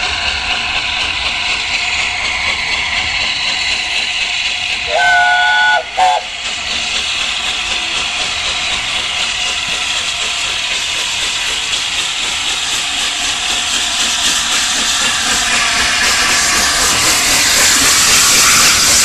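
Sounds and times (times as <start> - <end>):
steady steam hiss: 0.0 - 19.0
steam locomotive chime whistle: 4.8 - 6.3.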